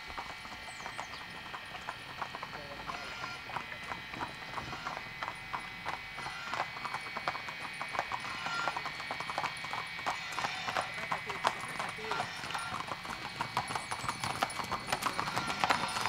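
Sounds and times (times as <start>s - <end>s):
horse hooves clip-clopping on pavement: 0.0s - 16.0s.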